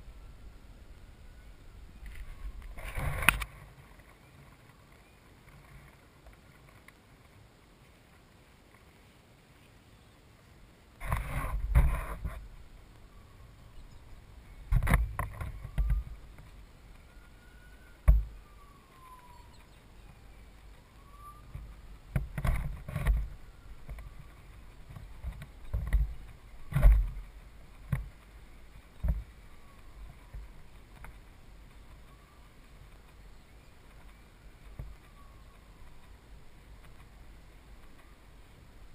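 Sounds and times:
wind buffeting microphone: 0:11.0 - 0:17.1
faint high whistles: 0:17.0 - 0:21.6, 0:32.0 - 0:32.6, 0:34.9 - 0:36.1.

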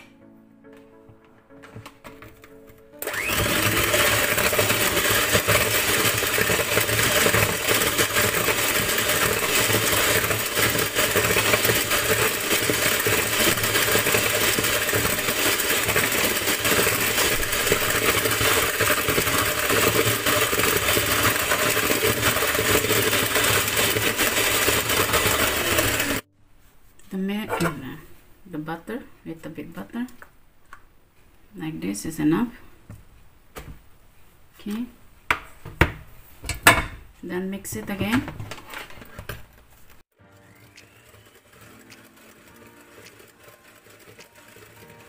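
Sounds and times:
electric hand mixer whisking batter: 0:03.0 - 0:26.3, 0:40.4 - 0:45.0.

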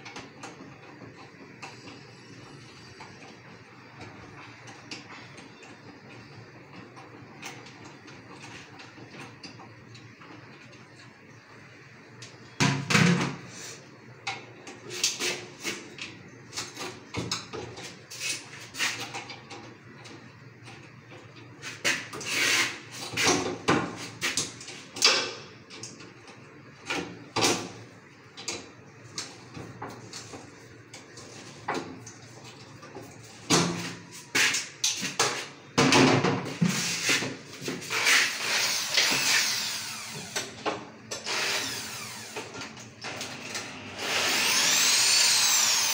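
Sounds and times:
electric drill whirring: 0:38.0 - 0:40.5, 0:41.2 - 0:42.5, 0:43.1 - 0:45.9.

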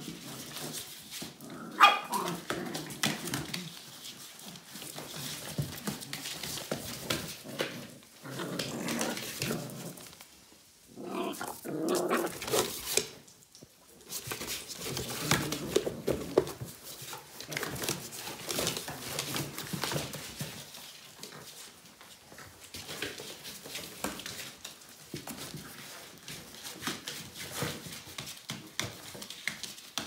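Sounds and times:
paws scratching cardboard: 0:00.0 - 0:13.2, 0:13.8 - 0:30.0
puppies growling in play: 0:00.1 - 0:13.2, 0:14.3 - 0:20.6.

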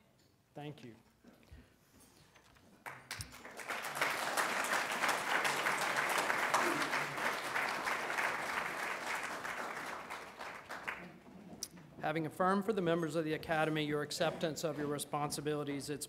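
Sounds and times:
crowd applauding: 0:02.8 - 0:11.2.

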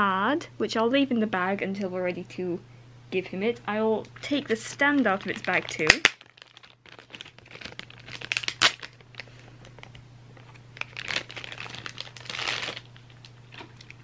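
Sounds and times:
plastic bag crinkling: 0:04.2 - 0:14.0.

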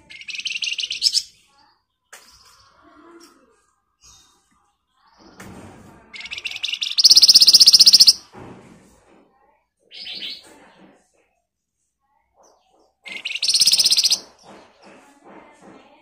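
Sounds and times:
songbird rattling trill: 0:00.1 - 0:01.3, 0:06.2 - 0:08.2, 0:13.1 - 0:14.3.

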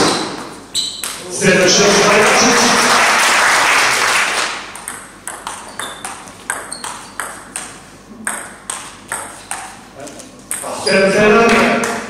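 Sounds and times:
crowd applause and cheering: 0:01.7 - 0:04.6
table tennis ball clicking: 0:04.7 - 0:09.8.

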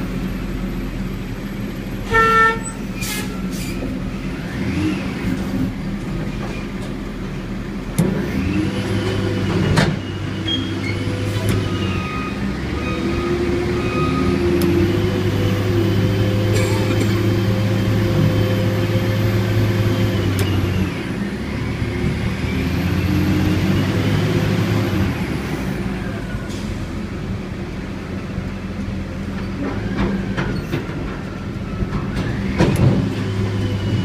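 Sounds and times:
diesel engine running: 0:00.0 - 0:34.0
short horn toot: 0:02.1 - 0:03.4.

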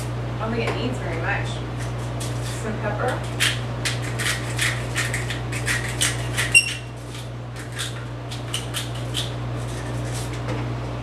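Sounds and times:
pepper mill grinding: 0:01.8 - 0:10.4.

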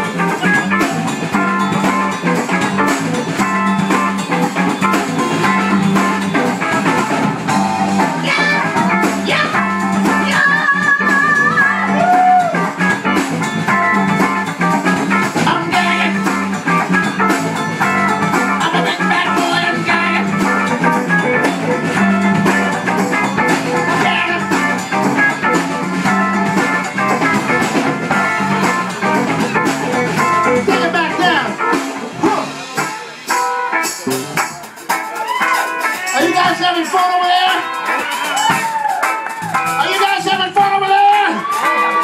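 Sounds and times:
live rock band playing: 0:00.0 - 0:42.0.

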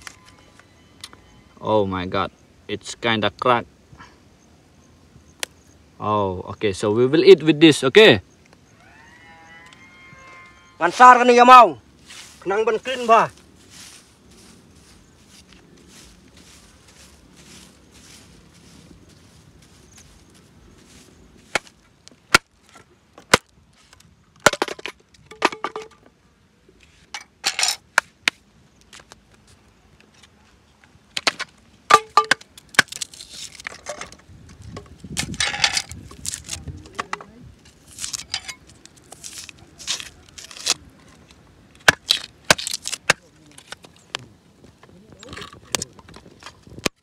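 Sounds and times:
dry sticks snapping: 0:05.4 - 0:05.6, 0:31.2 - 0:34.2, 0:34.8 - 0:44.3
knife peeling shallots: 0:37.8 - 0:40.8.

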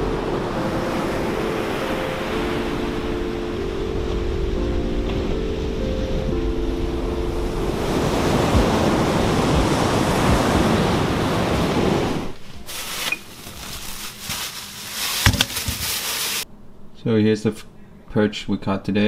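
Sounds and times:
wind on microphone: 0:04.0 - 0:12.3.

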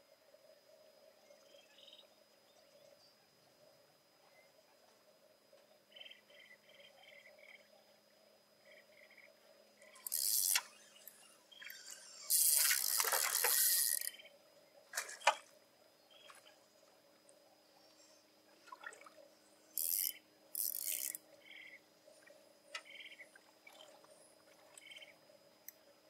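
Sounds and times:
water splashing: 0:12.6 - 0:13.6.

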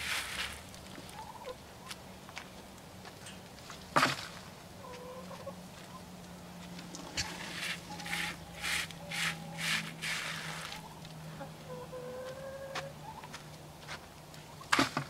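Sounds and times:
rustling: 0:00.0 - 0:01.2, 0:06.7 - 0:10.9
chicken clucking: 0:01.0 - 0:01.6, 0:04.8 - 0:06.1, 0:06.9 - 0:13.4.

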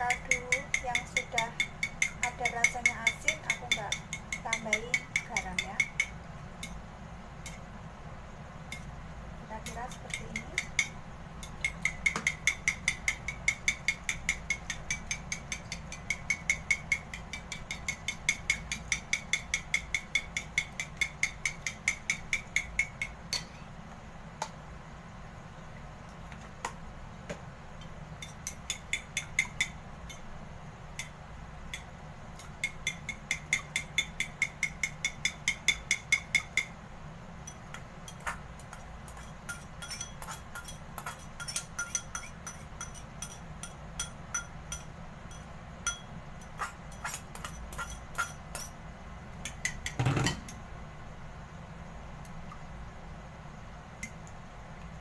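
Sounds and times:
fork beating eggs in a bowl: 0:00.0 - 0:06.8, 0:09.5 - 0:23.6, 0:28.2 - 0:30.3, 0:31.0 - 0:36.7, 0:37.5 - 0:48.8.

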